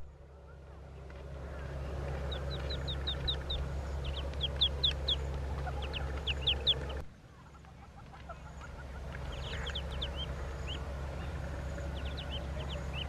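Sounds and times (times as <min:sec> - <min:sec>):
low rumble: 0:00.0 - 0:07.2, 0:08.0 - 0:13.0
birds chirping high peeps: 0:01.5 - 0:13.0.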